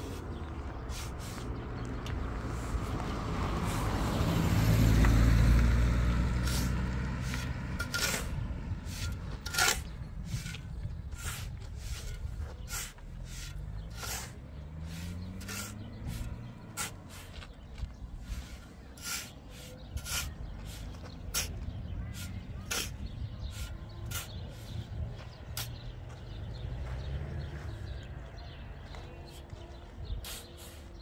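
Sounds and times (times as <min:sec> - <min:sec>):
engine running: 0:00.0 - 0:29.2.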